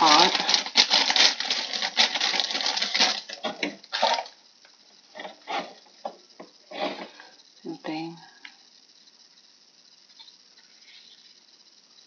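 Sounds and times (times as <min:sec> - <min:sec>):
plastic bag crinkling: 0:00.0 - 0:04.4.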